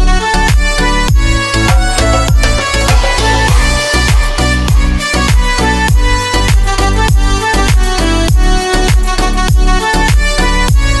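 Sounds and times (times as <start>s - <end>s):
background music with steady beat: 0.0s - 11.0s
deep bass hits falling in pitch: 1.1s - 6.2s.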